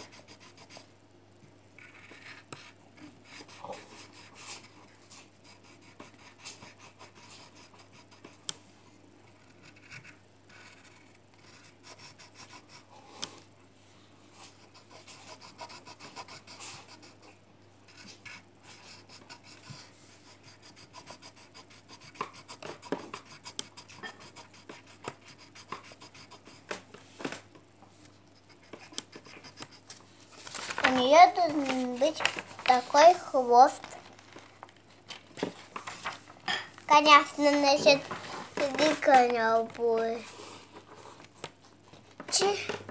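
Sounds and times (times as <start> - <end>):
pencil scratching on paper: 0.0 - 0.9, 1.8 - 8.5, 9.3 - 13.3, 14.3 - 26.8, 28.4 - 29.9.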